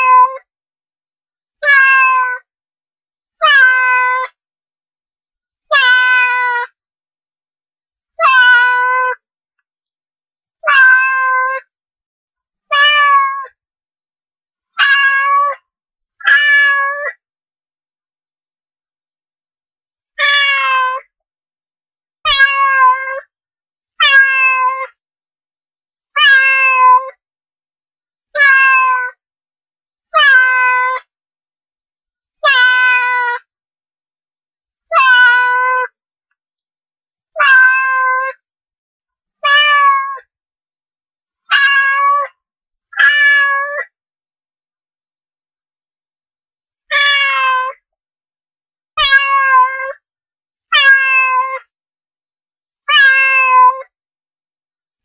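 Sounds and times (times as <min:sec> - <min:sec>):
cat meowing: 0:00.0 - 0:00.4, 0:01.6 - 0:02.4, 0:03.4 - 0:04.3, 0:05.7 - 0:06.7, 0:08.2 - 0:09.2, 0:10.6 - 0:11.6, 0:12.7 - 0:13.5, 0:14.8 - 0:15.6, 0:16.2 - 0:17.2, 0:20.2 - 0:21.0, 0:22.3 - 0:23.3, 0:24.0 - 0:25.0, 0:26.2 - 0:27.2, 0:28.4 - 0:29.2, 0:30.2 - 0:31.0, 0:32.4 - 0:33.4, 0:34.9 - 0:35.9, 0:37.4 - 0:38.4, 0:39.4 - 0:40.3, 0:41.5 - 0:42.3, 0:43.0 - 0:43.9, 0:46.9 - 0:47.8, 0:49.0 - 0:50.0, 0:50.7 - 0:51.7, 0:52.9 - 0:53.9.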